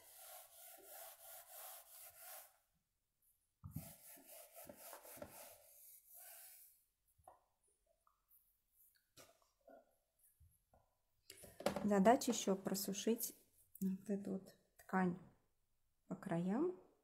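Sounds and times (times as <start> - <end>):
rag rubbing on damp paper: 0.0 - 2.6, 3.8 - 6.8.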